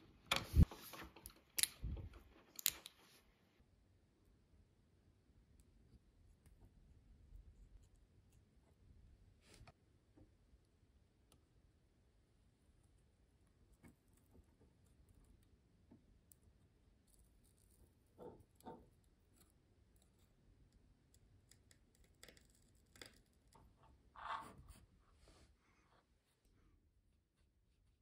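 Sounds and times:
small parts clicking and tapping: 0.3 - 3.1, 16.2 - 23.8.

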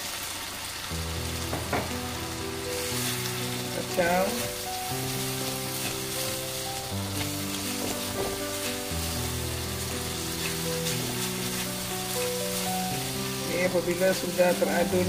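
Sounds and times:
chilies sizzling in oil: 0.0 - 15.0
music with held notes: 0.9 - 15.0
spatula stirring in a wok: 2.7 - 15.0.

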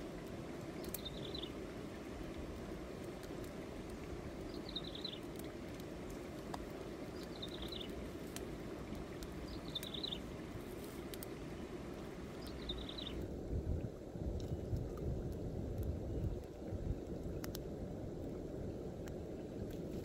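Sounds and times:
faint clicks: 17.3 - 17.7.

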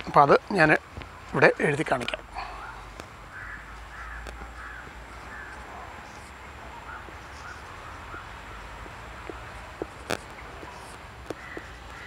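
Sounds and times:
crows cawing: 2.4 - 5.9, 11.2 - 12.0.

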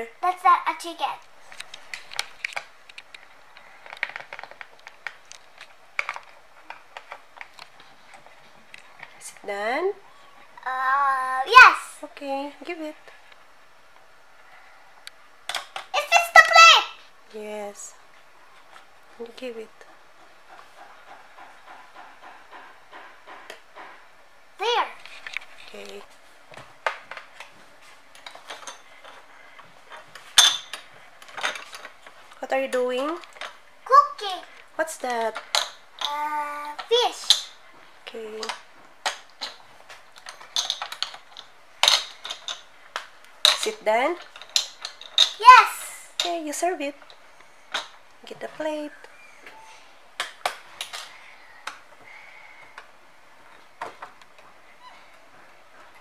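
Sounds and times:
toy dishes clicking and clattering: 28.2 - 29.3, 29.9 - 33.6, 35.0 - 37.6, 38.3 - 45.6.

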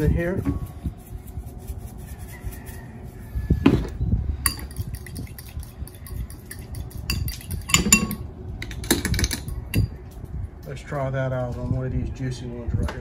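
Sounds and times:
spoon clinking against bowl: 4.4 - 8.2, 9.1 - 10.0
spoon stirring in ceramic bowl: 4.4 - 10.0.

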